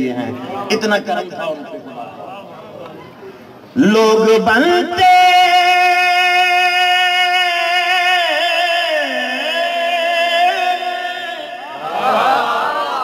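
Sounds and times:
man singing devotional song: 0:03.8 - 0:11.6
lower male voice singing: 0:03.8 - 0:12.2.

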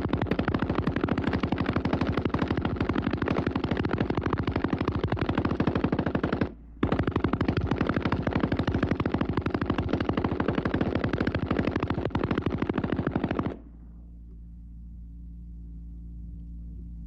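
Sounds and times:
machine gun firing bursts: 0:00.0 - 0:13.6.

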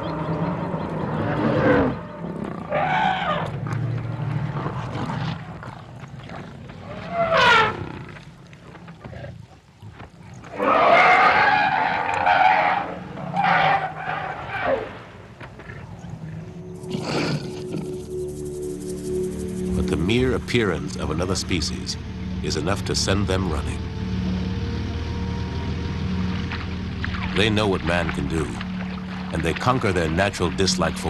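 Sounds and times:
elephants trumpeting: 0:00.0 - 0:05.6, 0:06.9 - 0:08.0, 0:10.5 - 0:15.0, 0:16.4 - 0:20.0
low growling: 0:15.6 - 0:18.4.

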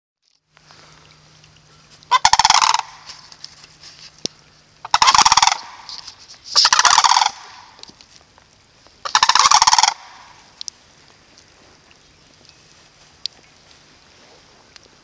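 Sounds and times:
cranes calling: 0:00.6 - 0:08.1, 0:09.0 - 0:10.7.

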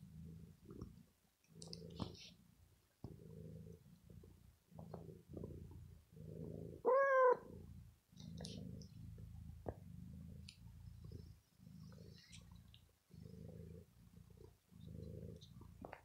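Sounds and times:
cat purring: 0:00.0 - 0:16.0
faint clicks: 0:00.7 - 0:02.3, 0:09.6 - 0:11.2
cat call: 0:06.9 - 0:07.4.

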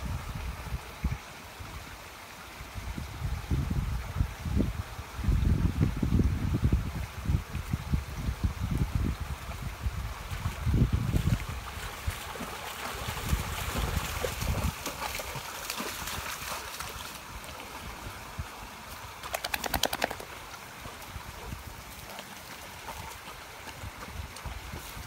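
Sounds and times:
dogs splashing through water: 0:10.2 - 0:18.2, 0:18.8 - 0:25.0
sharp ticks: 0:19.2 - 0:20.2.

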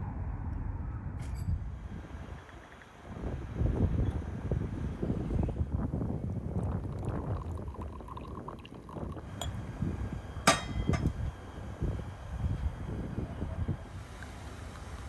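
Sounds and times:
low wind rumble on microphone: 0:00.0 - 0:14.2
tea pouring into glass: 0:06.4 - 0:09.6
glassware clinking: 0:10.5 - 0:11.1.

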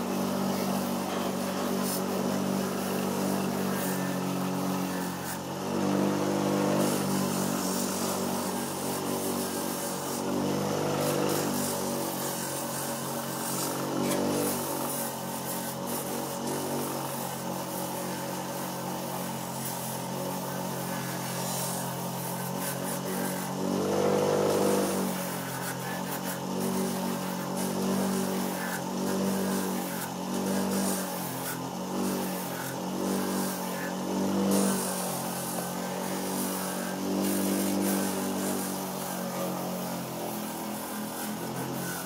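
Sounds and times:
bench grinder humming: 0:00.0 - 0:42.0
shoe sole grinding on wheel: 0:22.7 - 0:42.0.

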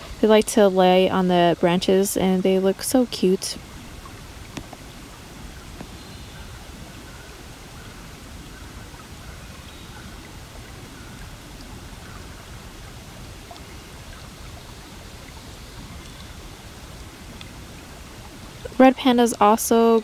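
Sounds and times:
background hiss: 0:00.0 - 0:20.0.

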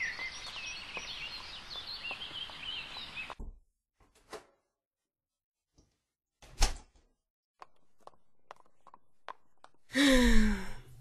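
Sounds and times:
person sighing: 0:09.9 - 0:10.9.

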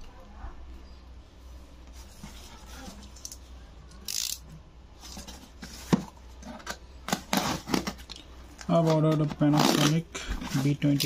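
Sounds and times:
cardboard parcel being handled: 0:05.0 - 0:11.0.

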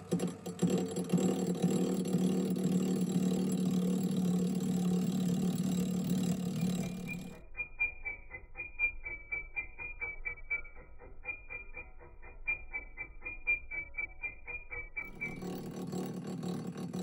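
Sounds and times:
metal lathe humming: 0:00.0 - 0:07.4, 0:15.0 - 0:17.0
rapid ticking of interrupted cut: 0:00.0 - 0:07.4, 0:15.0 - 0:17.0.

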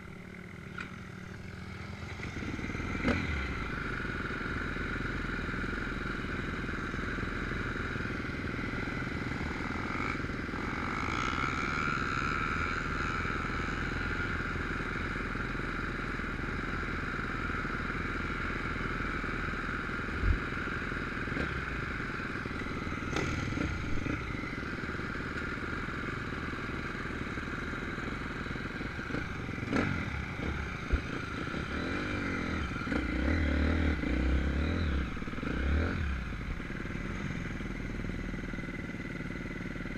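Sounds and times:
distant dirt bike engines droning: 0:00.0 - 0:39.9
dirt bike engine revving: 0:02.0 - 0:03.8, 0:22.5 - 0:25.2, 0:28.6 - 0:37.7.

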